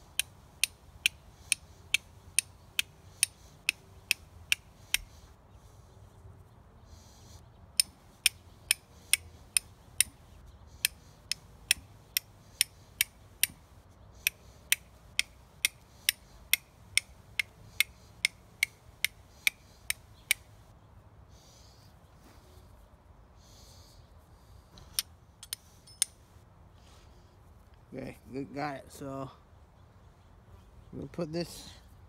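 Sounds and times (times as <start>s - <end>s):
flint and steel clicks: 0.1s - 5.1s, 7.8s - 20.5s, 24.8s - 26.2s.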